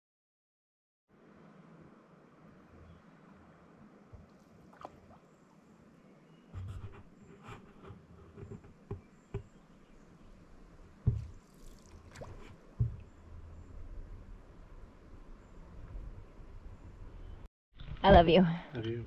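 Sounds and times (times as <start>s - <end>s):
hollow thumps against canoe hull: 11.0s - 11.4s, 12.2s - 13.1s
small knocks: 11.0s - 11.4s
paddle strokes in water: 11.1s - 13.0s.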